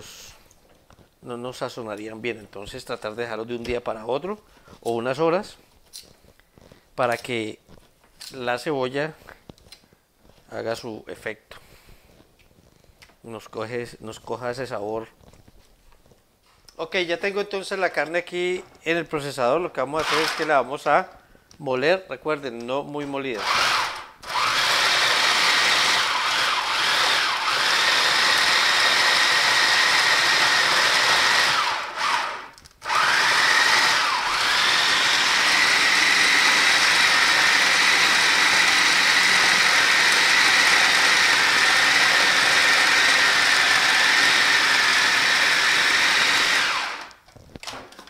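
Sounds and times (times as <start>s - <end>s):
food processor motor whining: 20.0s - 20.5s, 23.4s - 47.2s.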